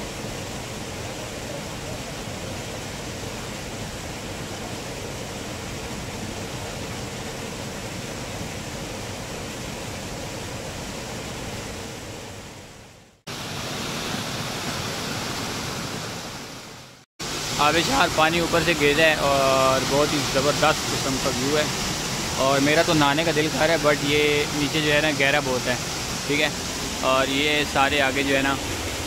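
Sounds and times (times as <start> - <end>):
waterfall pouring into pool: 17.2 - 29.0.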